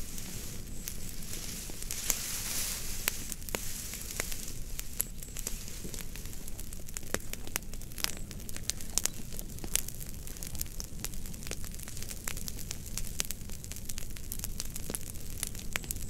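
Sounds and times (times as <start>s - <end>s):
steady hiss: 0.0s - 6.5s
fire crackling: 0.0s - 16.0s.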